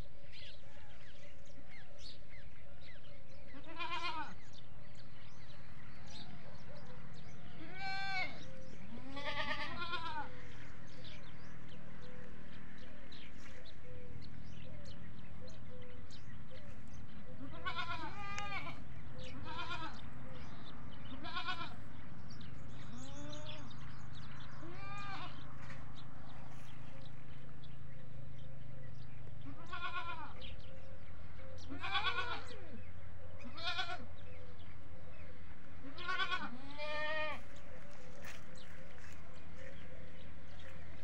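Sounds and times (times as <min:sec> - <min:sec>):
goats bleating: 0:03.6 - 0:04.6, 0:07.6 - 0:10.5, 0:17.4 - 0:20.1, 0:21.0 - 0:22.0, 0:24.6 - 0:25.4, 0:29.4 - 0:30.5, 0:31.7 - 0:32.6, 0:33.5 - 0:34.1, 0:35.8 - 0:38.4.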